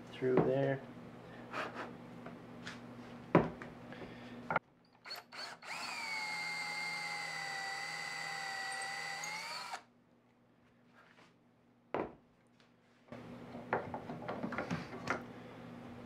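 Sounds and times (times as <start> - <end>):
cordless drill whine: 5.0 - 9.9.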